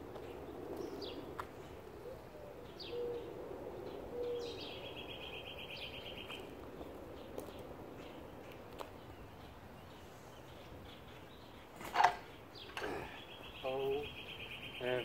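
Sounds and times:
birds chirping: 0:00.0 - 0:15.0
low steady bird notes: 0:00.0 - 0:15.0
bird trill: 0:10.9 - 0:15.0.

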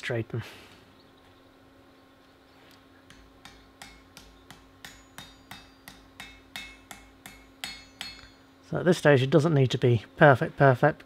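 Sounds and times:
hammer striking metal on anvil: 0:03.1 - 0:08.6.

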